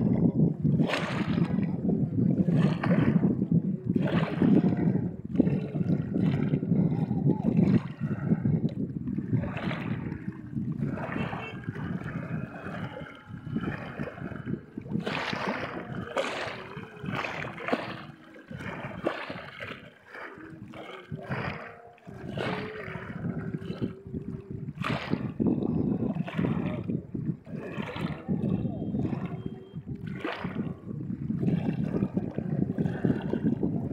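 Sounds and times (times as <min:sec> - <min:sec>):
water lapping and splashing: 0:00.0 - 0:33.9.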